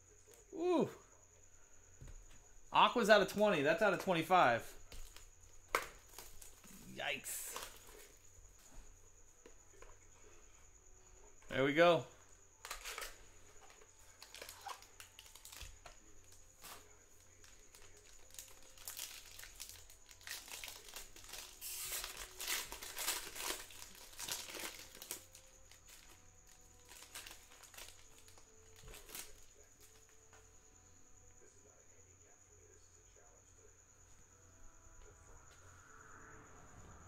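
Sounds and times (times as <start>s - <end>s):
foil wrapper crinkling and tearing: 12.6s - 16.0s, 16.6s - 29.9s.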